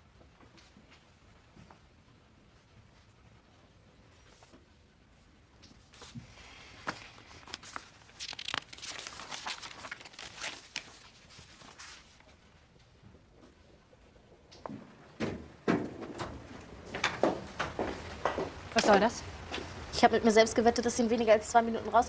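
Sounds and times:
paper rustling and crinkling: 5.8 - 12.5.

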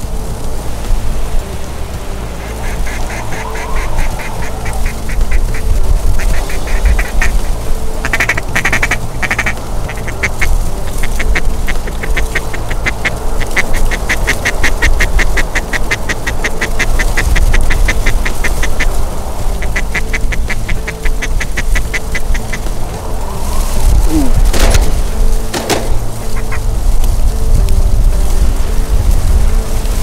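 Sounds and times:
wind rumble on microphone: 0.0 - 30.0
duck quacking: 2.4 - 18.9, 19.6 - 22.7, 25.7 - 26.6.

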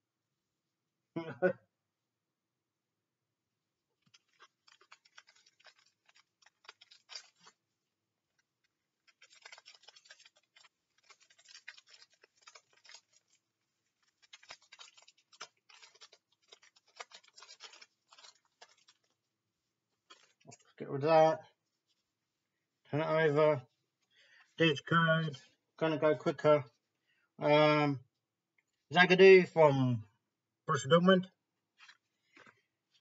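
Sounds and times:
foil wrapper crinkling: 4.0 - 19.3, 20.0 - 20.8.

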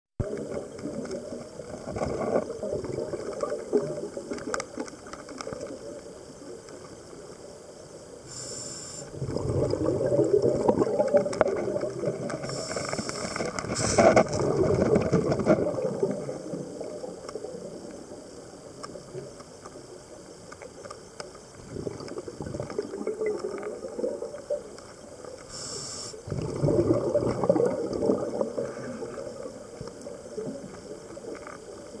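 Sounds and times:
regulator inhalation hiss: 8.1 - 9.2, 12.3 - 14.4, 25.4 - 26.4
bubbling regulator exhalations: 8.3 - 18.1, 21.6 - 24.8, 25.5 - 31.3.

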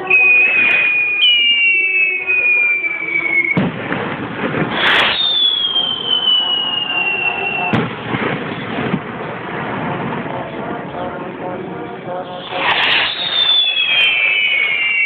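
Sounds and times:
falling rocket whistle: 0.0 - 3.8, 4.6 - 8.6, 12.4 - 15.0
firework bang: 3.6 - 6.6, 7.6 - 10.3, 12.4 - 15.0.

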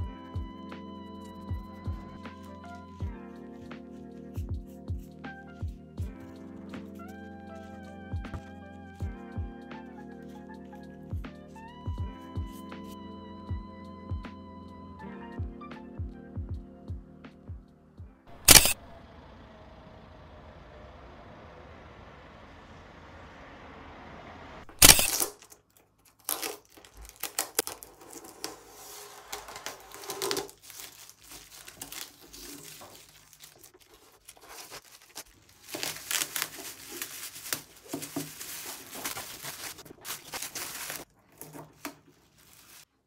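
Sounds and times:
plastic film crinkling and tearing: 24.7 - 43.0.

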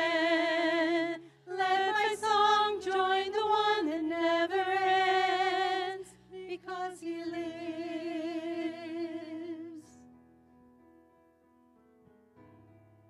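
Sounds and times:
singers holding long notes: 0.0 - 10.0.

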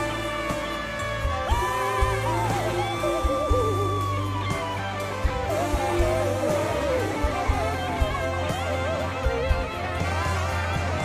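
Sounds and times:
bass: 0.0 - 11.0
electric guitar lead: 0.0 - 11.0
steady drum beat: 0.0 - 11.0
person singing: 1.2 - 11.0.

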